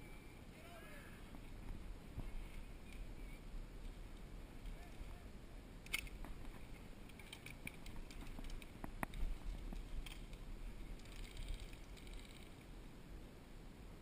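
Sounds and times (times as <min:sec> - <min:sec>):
low wind rumble: 0:00.0 - 0:14.0
sharp ticks and clicks: 0:05.8 - 0:12.6.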